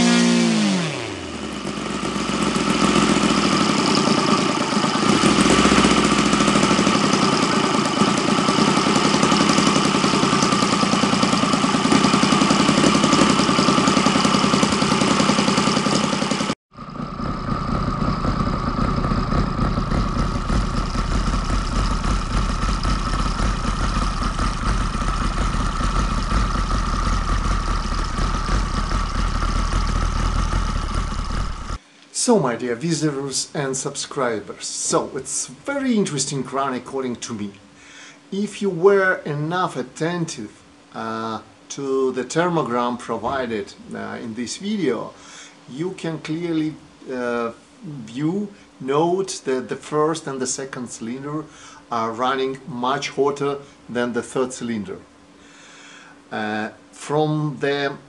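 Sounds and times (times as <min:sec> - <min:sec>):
model engine running: 0:00.0 - 0:31.8.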